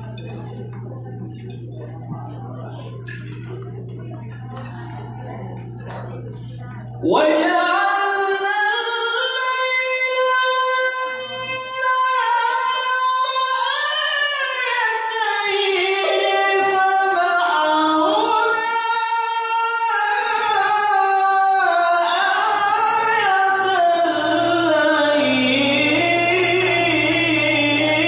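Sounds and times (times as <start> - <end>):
man chanting recitation: 6.6 - 28.0.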